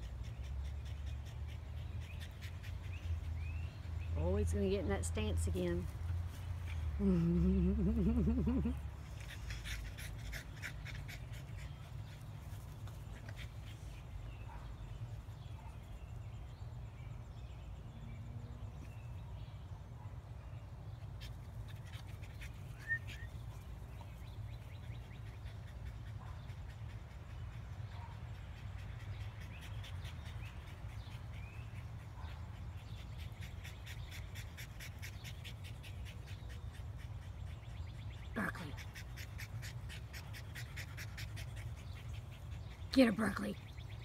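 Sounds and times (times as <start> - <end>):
dog panting: 0.0 - 14.7, 20.9 - 44.0.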